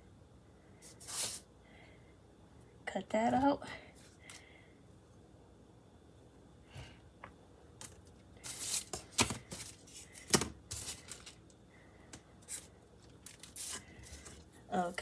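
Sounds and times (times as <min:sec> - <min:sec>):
parchment paper crinkling: 0:12.4 - 0:15.0.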